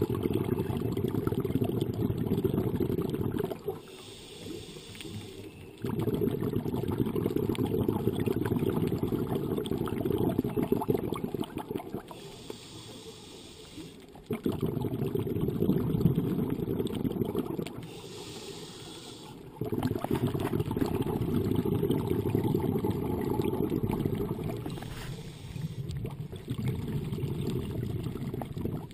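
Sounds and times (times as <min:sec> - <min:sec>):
exhaled bubbles crackling underwater: 0:00.0 - 0:28.9
regulator inhalation hiss: 0:03.8 - 0:05.5, 0:12.1 - 0:14.0, 0:17.8 - 0:19.5, 0:24.7 - 0:25.9.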